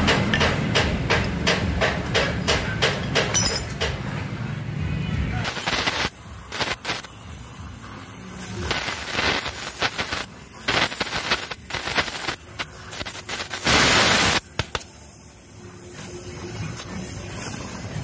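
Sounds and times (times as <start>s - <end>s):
weld crackling and spitting: 5.4s - 7.2s, 8.4s - 15.0s
welding torch hissing: 5.4s - 18.0s.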